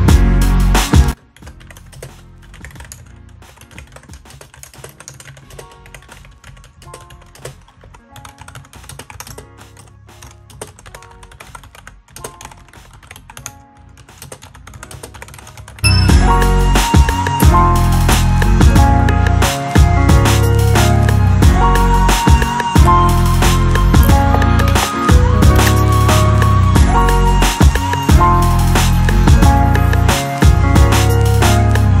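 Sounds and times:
soft music: 0.0 - 32.0
fast typing on keyboard: 1.1 - 15.9, 22.2 - 31.4.

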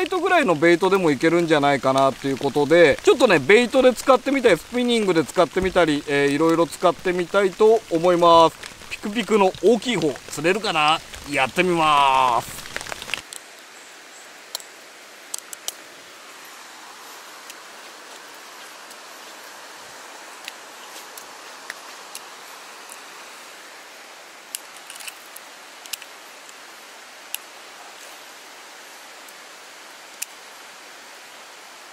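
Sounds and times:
stream water rushing: 0.0 - 31.9
rain gear rustling and clicking: 0.9 - 13.4.

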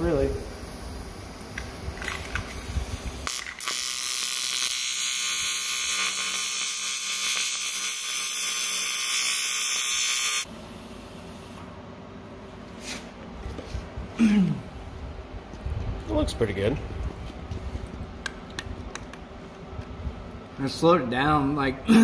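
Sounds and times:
welding arc buzzing hiss: 0.0 - 11.8.

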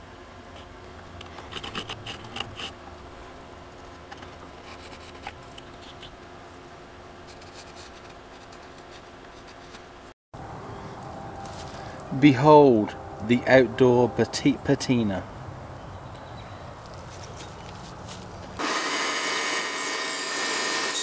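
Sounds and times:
pencil scratching on wood: 4.1 - 6.1.

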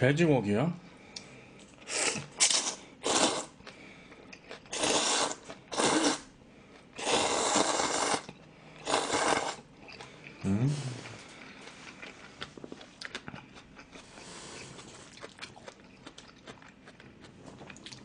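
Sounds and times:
noodles slurped: 1.8 - 3.8, 4.6 - 6.3, 7.0 - 10.1.

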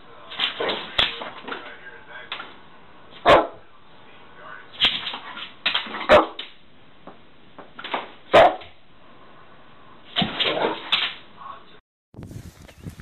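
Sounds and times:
dog barking: 3.2 - 3.6, 6.0 - 6.4, 8.3 - 8.8.

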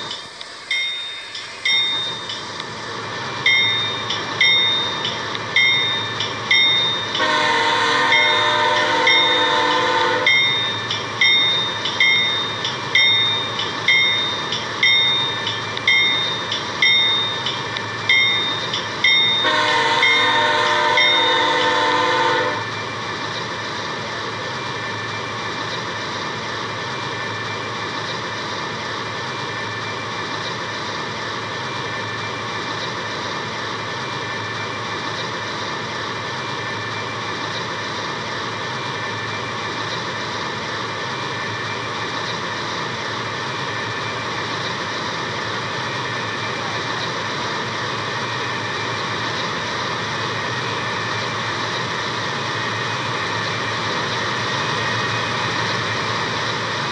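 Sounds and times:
railroad bell clanging: 0.0 - 56.9
train horn: 7.2 - 10.6, 19.4 - 22.8.

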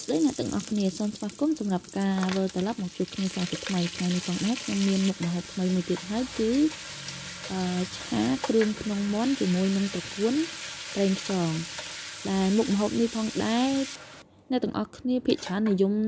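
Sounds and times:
food sizzling in a wok: 0.0 - 14.2
metal spatula stirring: 15.3 - 15.8.

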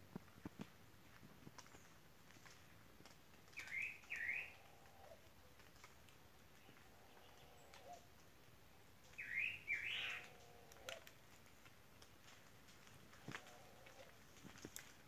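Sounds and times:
bird chirping: 3.6 - 5.2, 6.6 - 8.0, 9.0 - 11.0
pigeon cooing: 6.6 - 8.1, 9.2 - 11.1.

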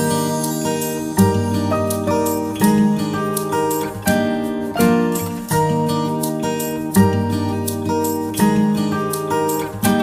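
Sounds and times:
acoustic guitar playing: 0.0 - 10.0.

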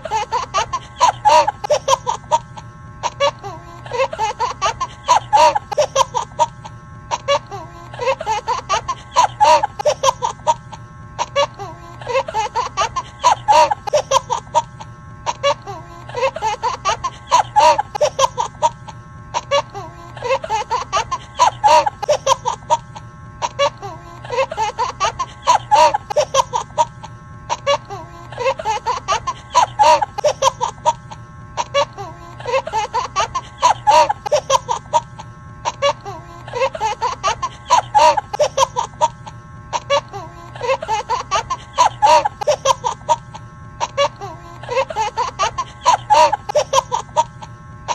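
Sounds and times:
laughter sound effect: 39.8 - 47.2.

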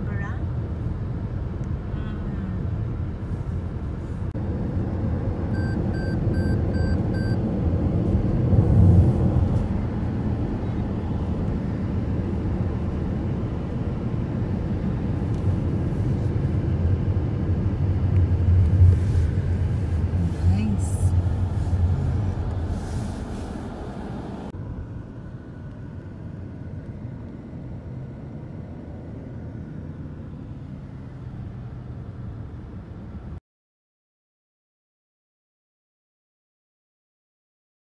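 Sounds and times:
car engine and tyre rumble: 0.0 - 33.4
short high beeps: 5.6 - 7.4.

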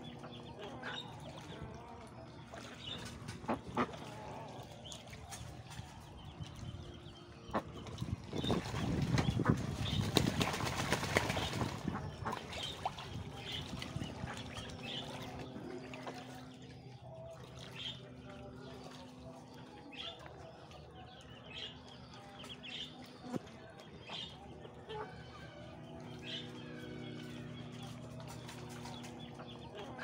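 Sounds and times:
ducks splashing and flapping: 0.1 - 20.9, 22.6 - 30.0
poultry chirps and peeps: 4.9 - 15.3.

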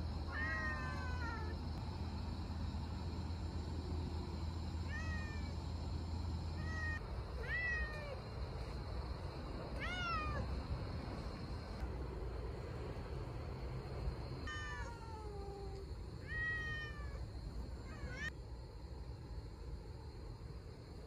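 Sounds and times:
cat meowing: 0.3 - 1.6, 4.8 - 5.5, 6.6 - 8.2, 9.8 - 10.5, 14.4 - 17.2, 17.8 - 18.3.

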